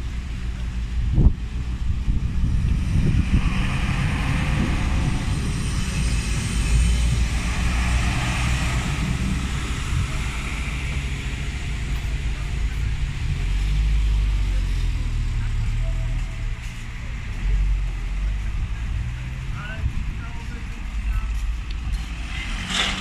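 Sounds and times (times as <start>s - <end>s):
diesel railcar engine running: 0.0s - 23.0s
train wheels rumbling on rails: 0.0s - 23.0s.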